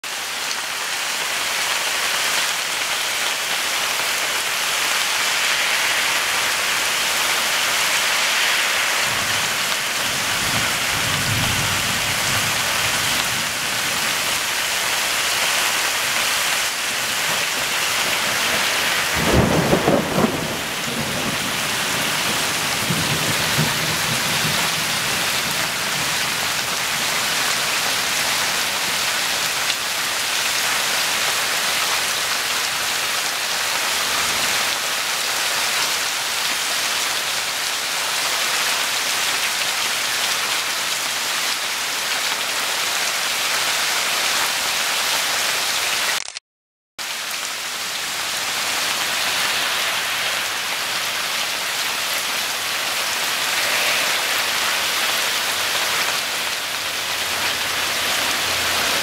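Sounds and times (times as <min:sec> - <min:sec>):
heavy rain falling: 0:00.0 - 0:46.4, 0:47.0 - 0:59.0
thunder rumbling and cracking: 0:05.0 - 0:14.4, 0:16.8 - 0:27.2.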